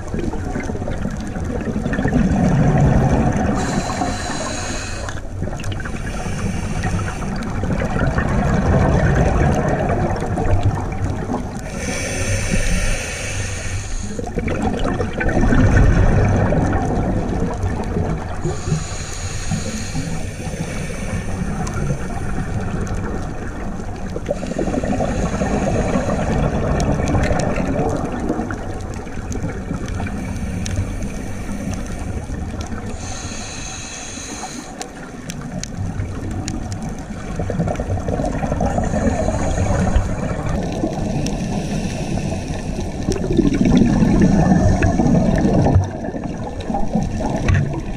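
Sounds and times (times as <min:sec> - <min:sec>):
muffled underwater water rush: 0:00.0 - 0:47.9
regulator breathing hiss: 0:03.5 - 0:07.5, 0:11.6 - 0:14.3, 0:18.4 - 0:22.4, 0:24.3 - 0:26.5, 0:30.1 - 0:32.2, 0:32.8 - 0:35.1, 0:38.8 - 0:40.4, 0:41.0 - 0:43.0.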